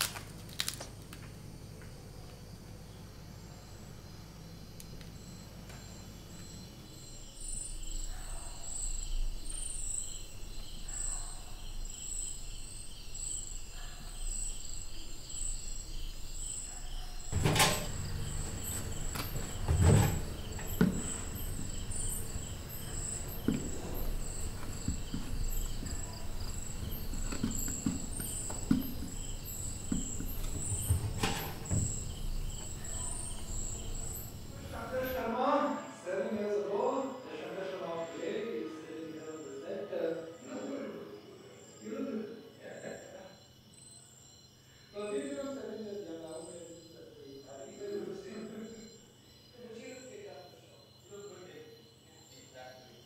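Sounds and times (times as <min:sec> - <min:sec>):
crickets chirping: 0:00.0 - 0:53.0
laundry knocks and thumps: 0:17.3 - 0:35.2.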